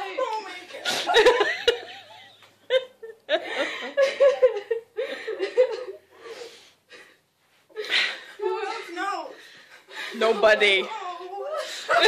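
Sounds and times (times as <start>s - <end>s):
women laughing tearfully: 0.7s - 6.1s, 9.8s - 12.0s.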